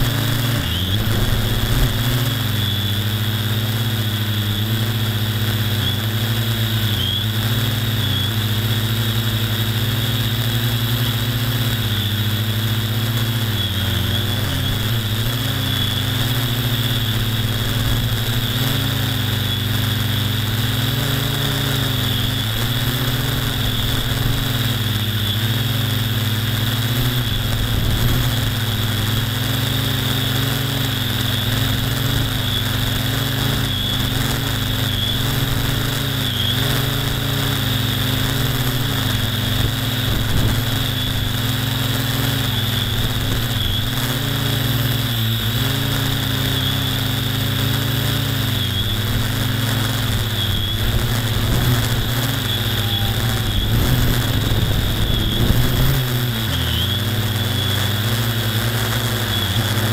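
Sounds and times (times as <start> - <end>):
electric motor and propeller whine: 0.0 - 59.9.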